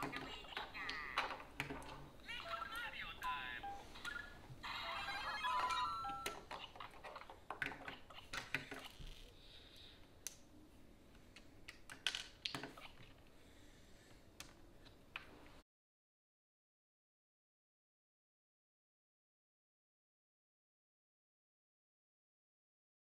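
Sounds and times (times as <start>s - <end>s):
plastic pieces clicking: 0.0s - 3.4s, 11.4s - 13.0s
electronic toy chirps and jingles: 2.5s - 6.4s.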